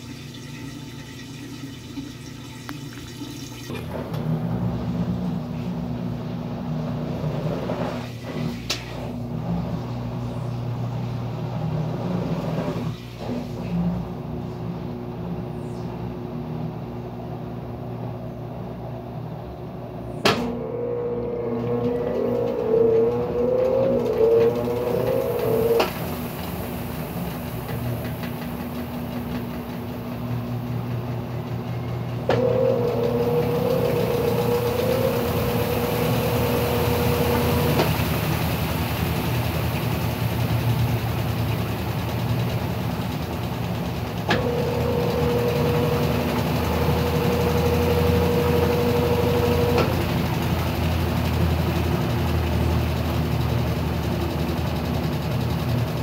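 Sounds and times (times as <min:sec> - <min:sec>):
washing machine spinning hum: 0:00.0 - 0:56.0.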